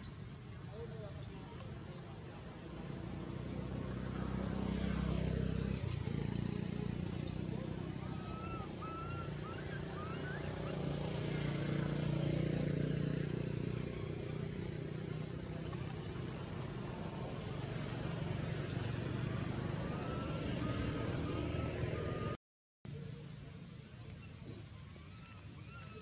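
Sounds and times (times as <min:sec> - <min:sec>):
faint chirping calls: 0:00.0 - 0:03.5, 0:05.0 - 0:15.0, 0:24.0 - 0:26.0
low engine-like rumble: 0:05.6 - 0:12.1, 0:13.3 - 0:26.0.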